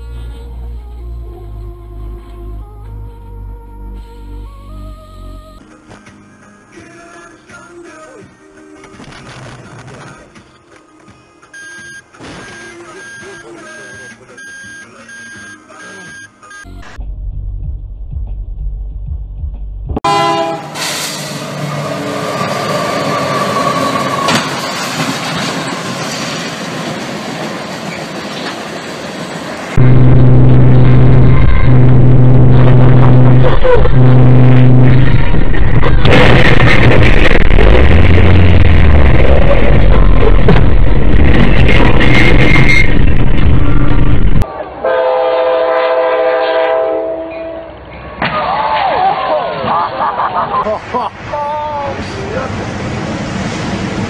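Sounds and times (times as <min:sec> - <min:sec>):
train rumbling and rattling: 0:17.0 - 0:44.6, 0:49.4 - 0:54.0
train horn: 0:20.0 - 0:24.4, 0:29.8 - 0:35.1, 0:43.6 - 0:47.8
train crashing into vehicle: 0:20.7 - 0:31.6, 0:34.6 - 0:44.4
loud noise: 0:29.7 - 0:45.1
steady high tone: 0:29.8 - 0:35.1.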